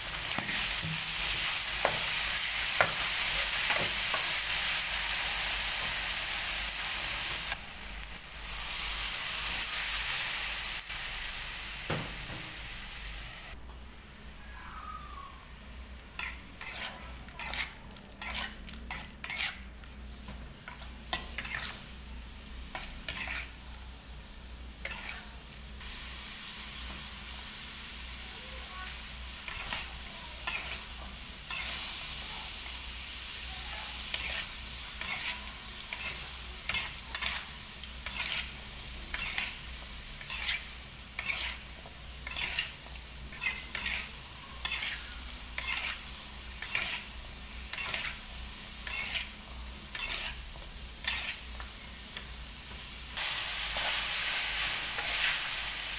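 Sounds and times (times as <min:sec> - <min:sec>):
food sizzling: 0:00.0 - 0:13.6, 0:24.8 - 0:55.9
spatula scraping metal wok: 0:16.2 - 0:19.7, 0:21.1 - 0:22.0, 0:22.7 - 0:23.6, 0:24.8 - 0:25.3, 0:34.1 - 0:39.6, 0:40.2 - 0:51.6.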